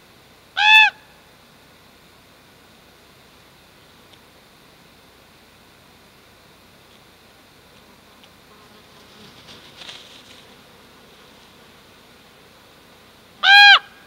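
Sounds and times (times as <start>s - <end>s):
raven harsh call: 13.4s - 14.0s.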